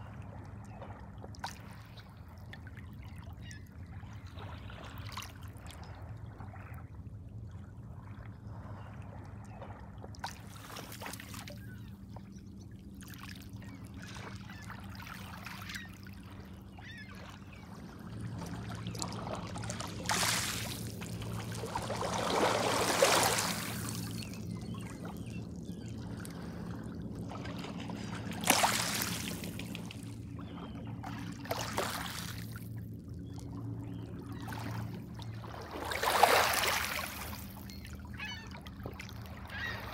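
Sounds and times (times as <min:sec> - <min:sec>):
steady low hum: 0:11.4 - 0:35.9.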